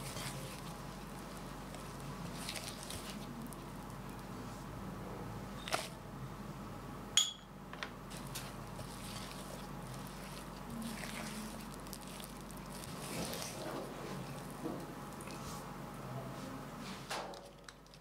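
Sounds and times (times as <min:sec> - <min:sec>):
spatula scraping and squishing dough: 0:00.0 - 0:03.6, 0:08.1 - 0:15.7
clink on glass bowl: 0:07.2 - 0:07.5.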